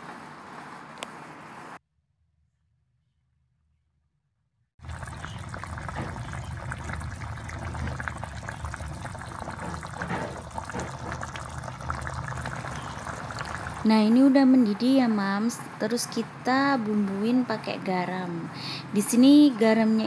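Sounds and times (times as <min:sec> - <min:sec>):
sauce bubbling in a wok: 0:04.8 - 0:14.3.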